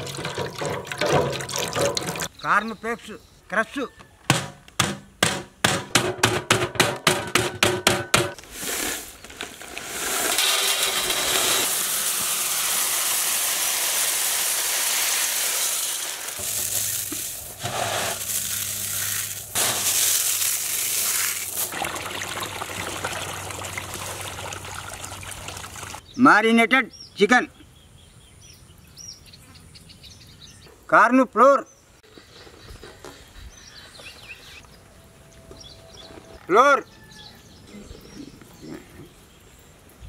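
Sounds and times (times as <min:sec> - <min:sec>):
mallet pounding plastic packet: 0:04.3 - 0:08.4
cereal pouring into steel bowl: 0:08.5 - 0:21.7.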